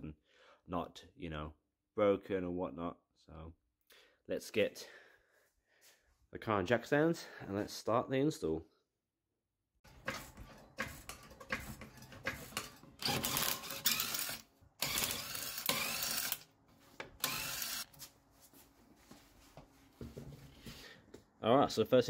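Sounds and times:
jack stands ratcheting: 13.0 - 16.4, 17.2 - 17.8.

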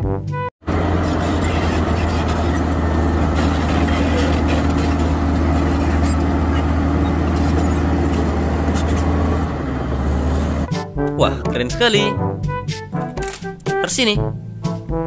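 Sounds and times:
bulldozer diesel engine under load: 0.6 - 10.7.

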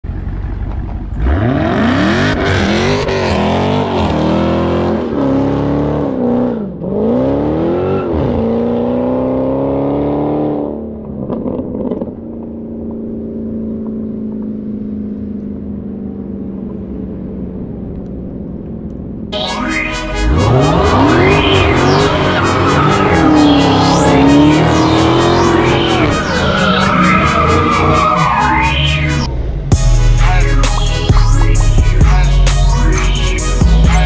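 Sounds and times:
engine revving hard: 1.2 - 10.7, 19.4 - 29.3
low engine drone: 11.0 - 34.0.

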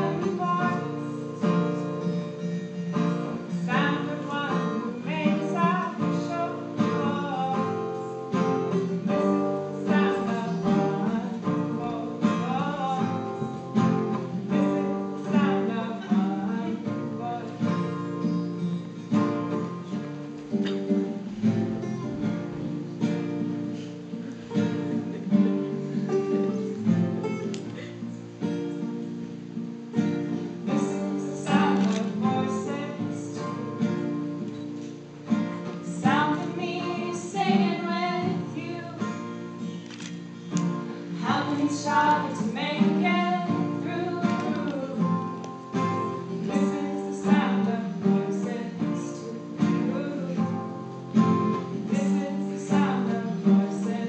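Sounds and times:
women singing: 0.0 - 1.2, 3.6 - 17.8, 30.7 - 34.2, 35.8 - 39.3, 41.1 - 54.0
acoustic guitars strummed: 0.0 - 54.0.

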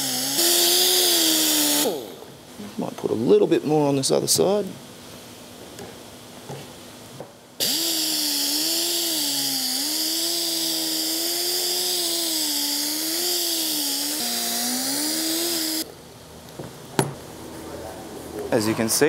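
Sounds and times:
air buffer exhaust hiss: 0.0 - 2.9, 7.6 - 15.9
air buffer whine: 0.0 - 4.6, 7.6 - 19.0.

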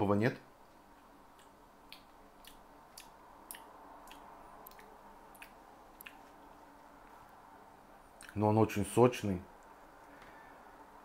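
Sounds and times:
person chewing juicy fruit: 0.9 - 6.6.

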